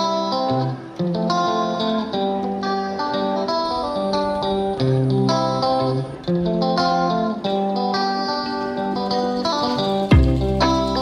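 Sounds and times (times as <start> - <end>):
plucked guitar melody: 0.0 - 11.0.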